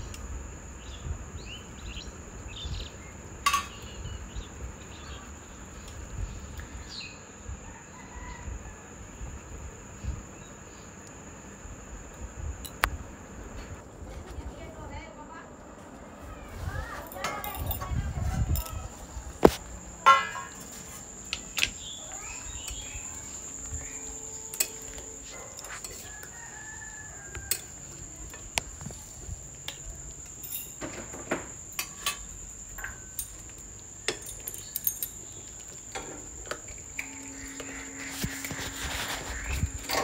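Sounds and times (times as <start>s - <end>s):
rooster crowing: 7.5s - 9.2s, 22.1s - 28.3s, 36.9s - 40.0s
high-pitched whine: 17.4s - 26.3s, 35.9s - 40.0s.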